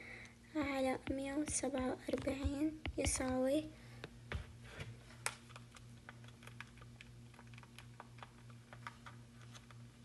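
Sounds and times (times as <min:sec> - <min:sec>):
steady low hum: 0:00.0 - 0:10.0
calculator keys tapping: 0:00.6 - 0:03.6, 0:05.3 - 0:09.6.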